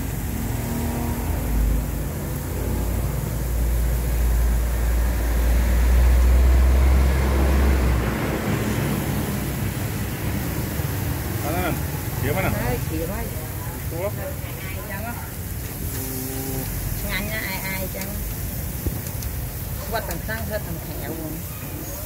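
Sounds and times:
meat sizzling over charcoal: 0.0 - 22.0.

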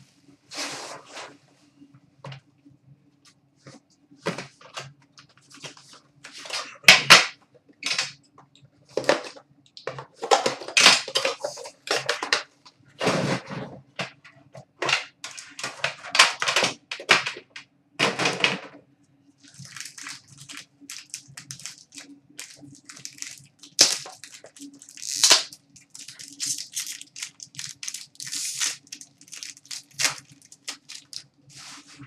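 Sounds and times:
faint steady hum: 0.0 - 32.0
foil pack crinkling: 19.4 - 32.0.

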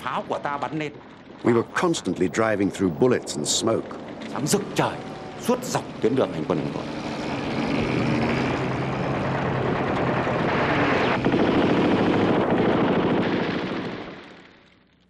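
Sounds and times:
loud engine roar: 2.5 - 13.4.

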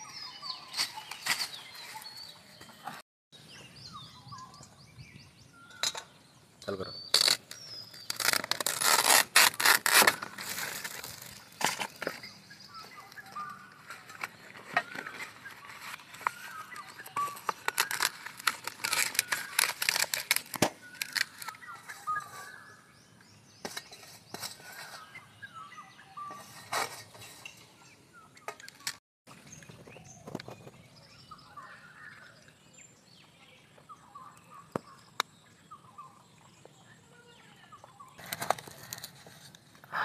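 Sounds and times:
birds chirping: 0.0 - 40.0
banana leaf crackling and rustling: 7.1 - 12.3, 13.0 - 22.2.

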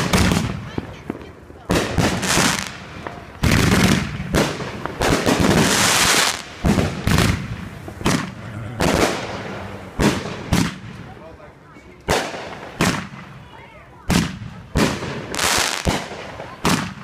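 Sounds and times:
hissing crackle of fireworks: 0.0 - 17.0.

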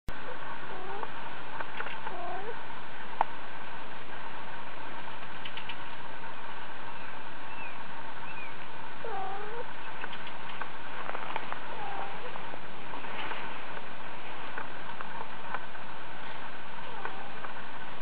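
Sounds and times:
background hiss: 0.1 - 18.0
cat meowing: 9.0 - 9.7.

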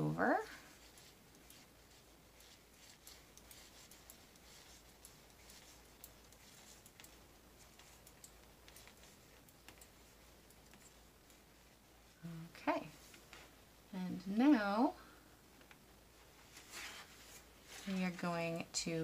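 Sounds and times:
knitting needles clicking: 0.8 - 11.5.

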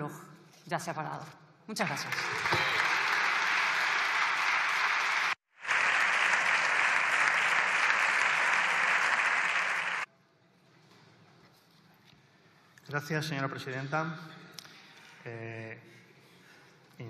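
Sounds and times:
audience applause: 1.8 - 10.1.

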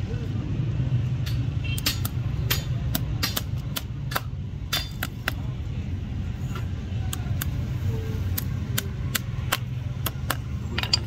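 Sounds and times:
low engine-like rumble: 0.0 - 11.0
hammer tapping on horseshoe: 1.2 - 5.4, 8.3 - 11.0.

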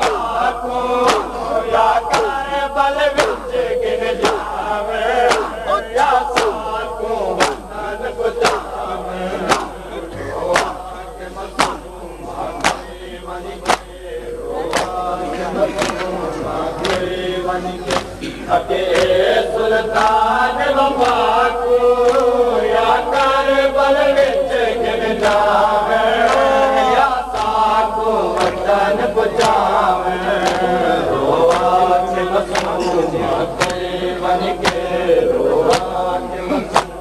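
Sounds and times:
men chanting a lament: 0.0 - 37.0
slaps of chest beating: 1.0 - 1.3, 3.2 - 3.4, 5.2 - 5.6, 6.3 - 6.6, 7.4 - 7.6, 9.5 - 9.8, 11.6 - 11.8, 12.6 - 12.9, 13.6 - 13.9, 14.7 - 15.0, 17.9 - 18.1, 32.5 - 32.8, 33.6 - 33.9, 34.6 - 34.8, 36.7 - 37.0.

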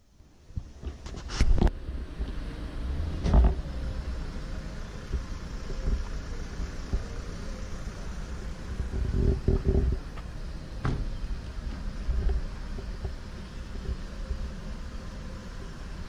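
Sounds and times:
wind buffeting microphone: 8.7 - 10.2
loud thumps: 10.8 - 11.1.

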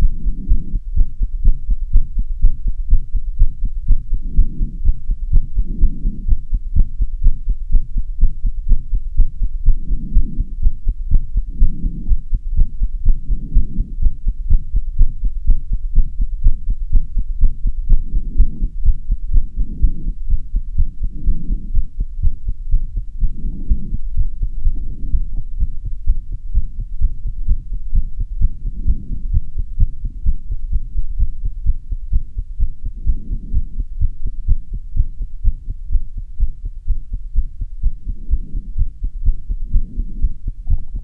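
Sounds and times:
fast heartbeat thumps: 0.0 - 41.0.

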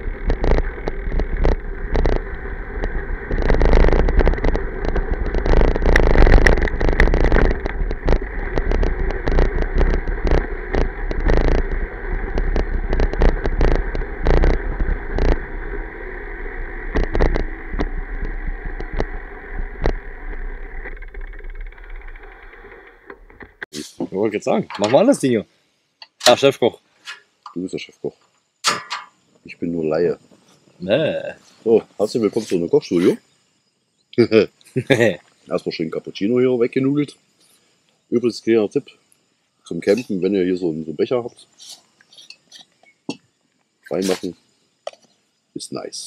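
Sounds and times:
bike clicks and rattles: 0.0 - 15.6, 16.9 - 23.6, 27.0 - 29.2
wind and tyre rumble: 0.0 - 23.7
faint motor whine: 0.0 - 27.0.

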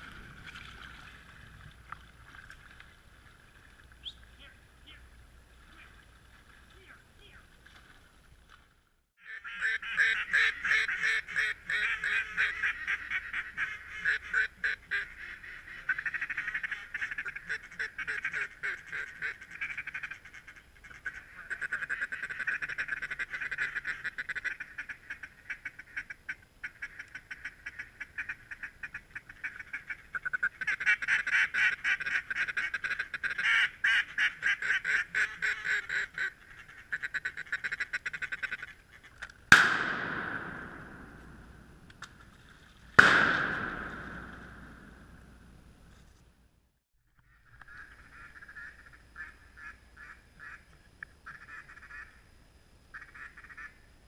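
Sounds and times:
shotgun shot echoing: 39.5 - 41.9, 43.0 - 45.4.

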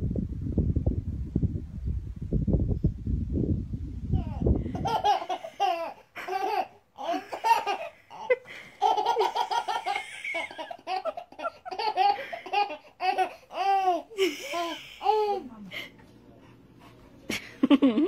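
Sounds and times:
baby laughing: 4.2 - 15.4.

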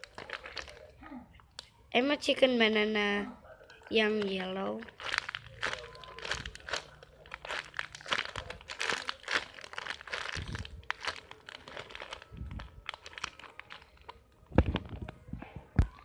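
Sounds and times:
plastic bag crinkling: 0.0 - 0.9, 4.0 - 15.1.

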